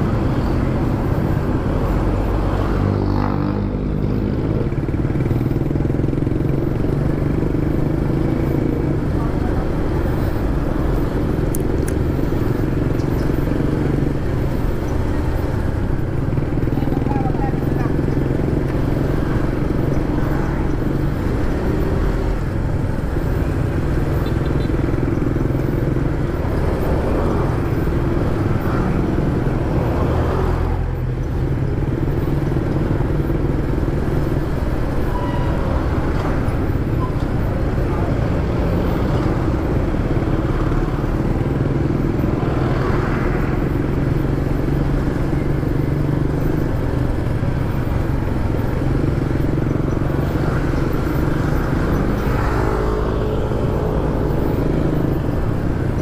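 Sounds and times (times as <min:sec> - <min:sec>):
vehicles passing: 0:00.0 - 0:56.0
wind and road noise: 0:00.0 - 0:56.0
scooter engine running: 0:03.6 - 0:29.9.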